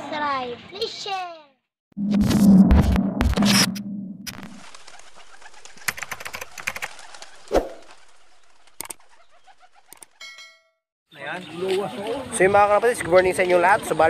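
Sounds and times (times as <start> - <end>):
pigeon wing flaps: 4.3 - 10.2.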